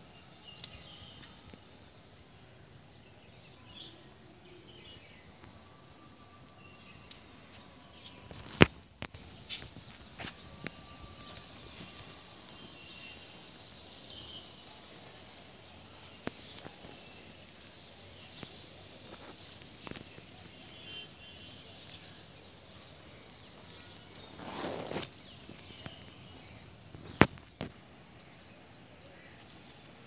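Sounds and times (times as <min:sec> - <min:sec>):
steady background hiss: 0:00.0 - 0:30.0
faint bird chirps: 0:19.0 - 0:27.2.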